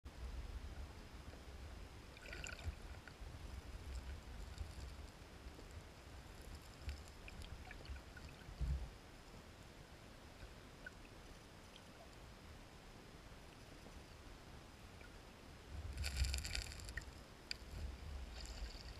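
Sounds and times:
underwater rumble of moving water: 0.1 - 9.3
stones clicking together: 16.0 - 17.1.

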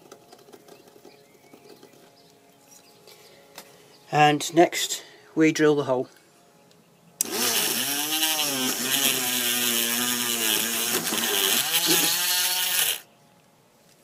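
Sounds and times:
power drill drilling: 7.2 - 13.1.

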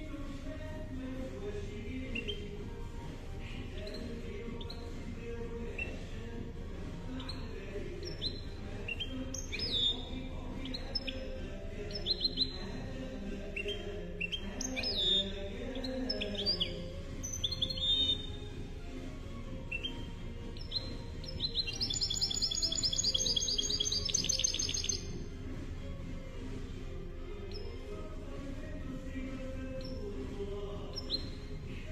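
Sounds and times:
finch singing chirps and trills: 0.0 - 31.9.

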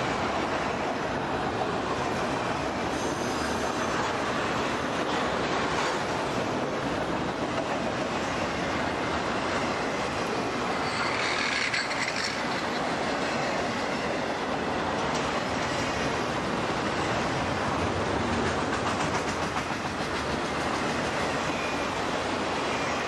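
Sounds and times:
steel train wheels on rails: 0.0 - 23.0
high wheel squeal: 10.7 - 14.2.

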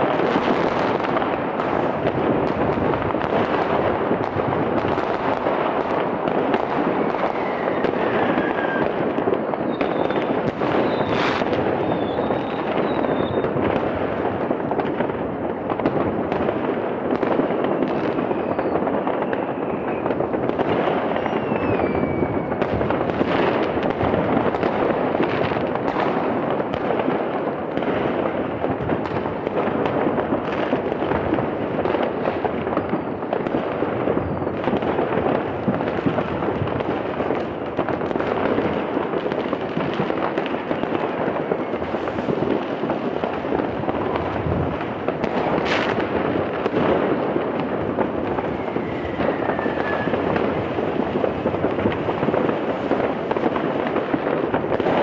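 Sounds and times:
loud firework bang: 0.0 - 15.1, 40.8 - 55.0
fireworks crackling and popping: 0.0 - 55.0
rocket falling whistle: 7.0 - 9.0, 9.6 - 13.6, 17.8 - 20.1, 21.1 - 22.6, 48.4 - 50.4.

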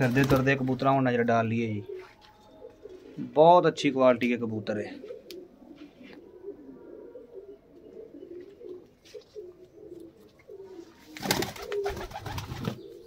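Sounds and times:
pigeons cooing: 0.0 - 3.6, 4.8 - 13.0.

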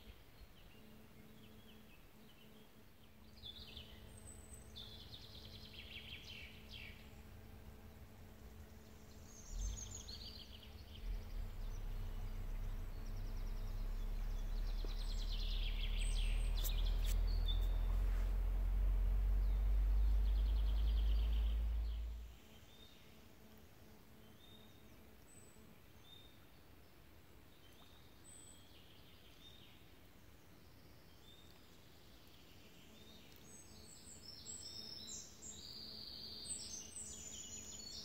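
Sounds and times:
small birds chirping: 0.0 - 38.0
low rumble: 3.8 - 22.8
low thumps: 9.5 - 22.3.

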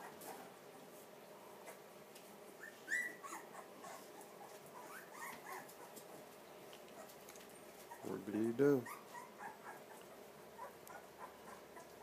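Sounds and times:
puppies squealing: 2.6 - 6.0, 7.8 - 8.2, 8.8 - 10.0.

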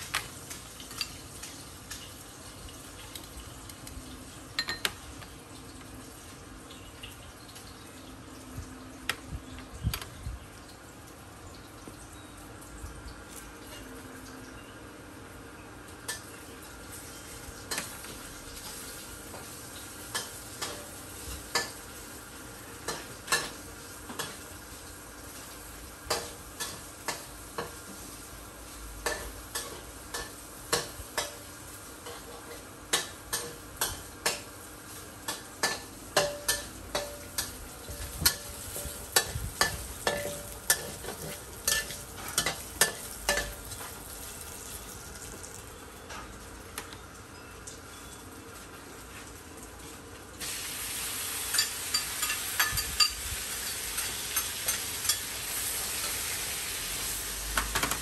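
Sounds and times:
frying sizzle: 0.0 - 58.0
metal spatula clanking on wok: 35.3 - 37.5, 38.2 - 43.6.

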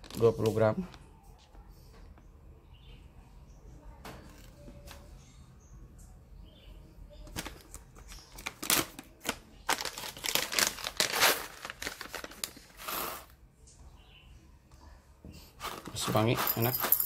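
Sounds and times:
coffee bag crinkling: 0.0 - 0.8, 7.3 - 13.4.

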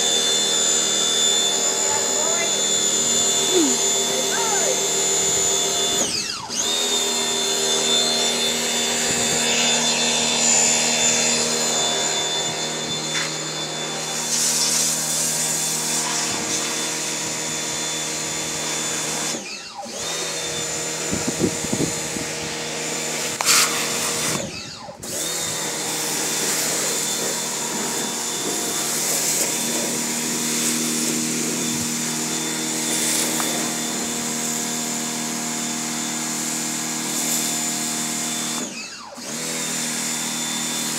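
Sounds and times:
pressure washer motor hum: 0.0 - 40.9
water jet hissing: 23.4 - 24.4.

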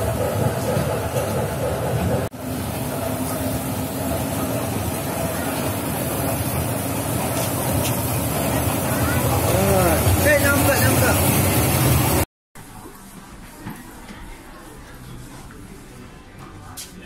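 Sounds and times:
kiddie ride train running on track: 0.0 - 12.2.

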